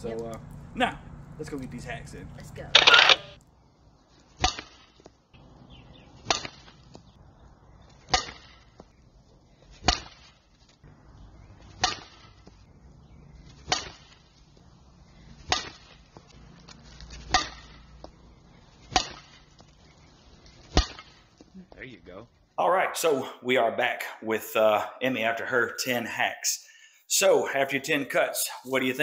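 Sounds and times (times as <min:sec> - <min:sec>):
softball bat hitting balls: 0:04.4 - 0:05.5, 0:06.1 - 0:07.1, 0:07.8 - 0:09.0, 0:09.6 - 0:10.4, 0:11.6 - 0:12.7, 0:13.4 - 0:14.7, 0:15.3 - 0:16.4, 0:17.1 - 0:19.8, 0:20.6 - 0:21.5.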